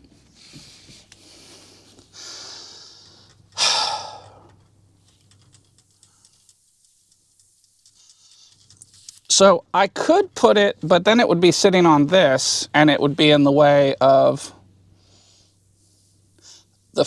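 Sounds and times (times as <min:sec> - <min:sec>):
man breathing: 0:00.0 - 0:04.7, 0:15.0 - 0:16.8.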